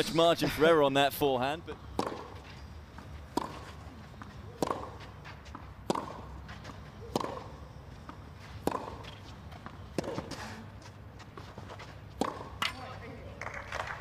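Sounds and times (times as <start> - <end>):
racket hitting tennis ball: 1.9 - 2.5, 3.3 - 13.9.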